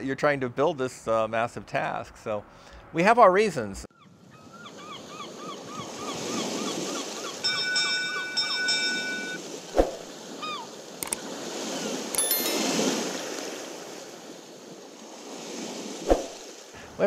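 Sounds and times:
ocean surf washing: 0:05.1 - 0:17.0
short ding: 0:07.4 - 0:09.4, 0:12.2 - 0:13.0
ringing chime: 0:07.4 - 0:09.5, 0:12.2 - 0:13.1
mouse click effects: 0:12.2 - 0:12.5.

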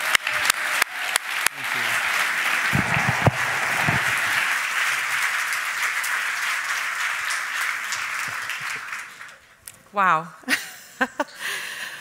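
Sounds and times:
audience applauding: 0:00.0 - 0:09.6
low thumps: 0:02.7 - 0:04.4.

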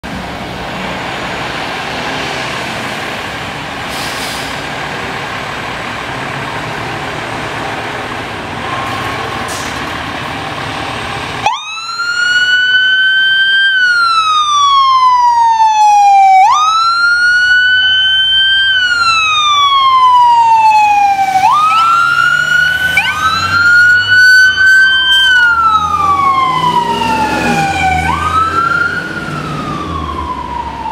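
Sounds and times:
street traffic noise: 0:00.0 - 0:30.9
emergency vehicle siren wailing: 0:04.9 - 0:30.9
second siren: 0:11.4 - 0:30.9.

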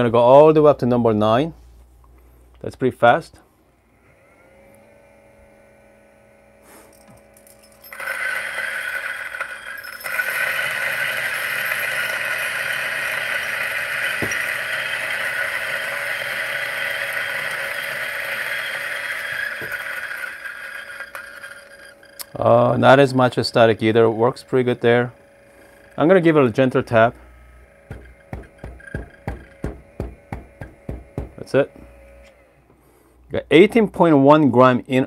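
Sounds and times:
grinder motor whine: 0:03.9 - 0:32.7
coffee grinder grinding beans: 0:04.4 - 0:32.4.

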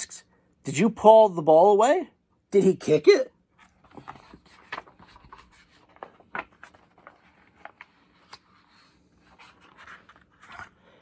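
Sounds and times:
paper page rustling: 0:03.5 - 0:11.0.

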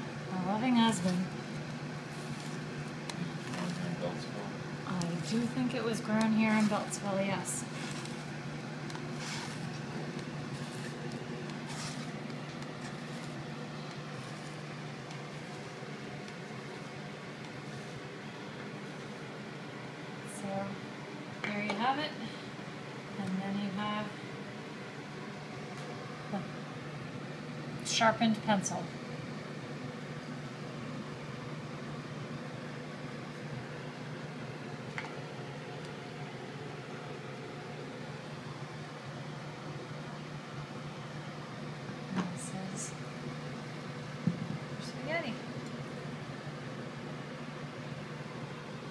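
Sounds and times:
low machine hum: 0:00.0 - 0:48.9
soft rustles of hand handling food: 0:07.6 - 0:19.4.

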